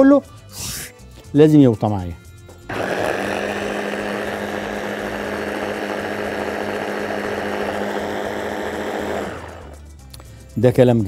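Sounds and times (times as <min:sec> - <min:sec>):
electric food chopper running: 0:02.7 - 0:09.9.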